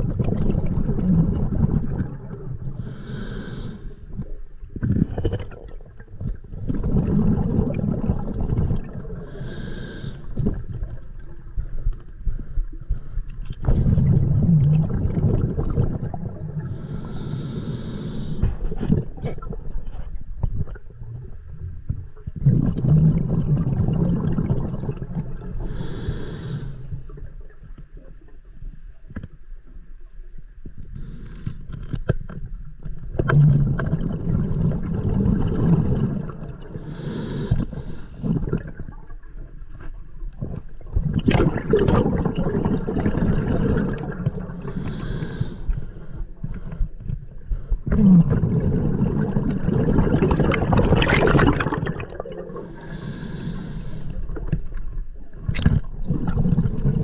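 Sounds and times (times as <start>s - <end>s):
exhaled bubbles rumbling: 0.0s - 29.2s, 32.4s - 57.0s
regulator inhalation hiss: 2.8s - 4.1s, 9.2s - 10.4s, 16.7s - 18.6s, 25.7s - 27.0s, 31.0s - 31.7s, 36.8s - 38.2s, 44.7s - 46.9s, 52.6s - 54.2s.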